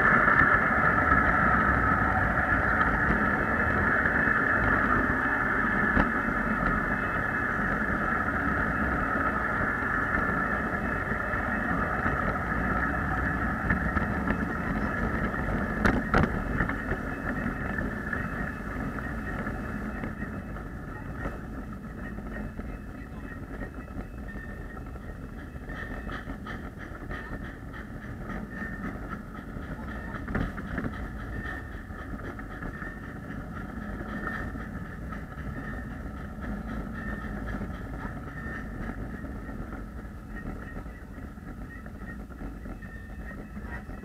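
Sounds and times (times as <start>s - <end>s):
miniature train motor whine: 0.0s - 44.0s.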